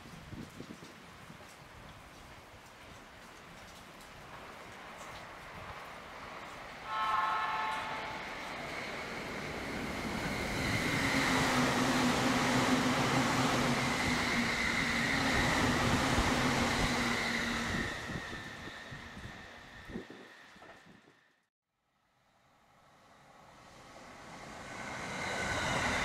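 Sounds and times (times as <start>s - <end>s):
electric train passing: 4.7s - 21.4s, 22.2s - 26.0s.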